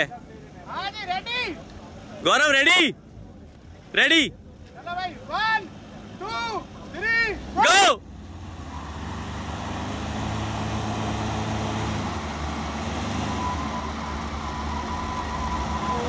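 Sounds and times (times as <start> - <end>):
engines revving hard: 5.6 - 16.0.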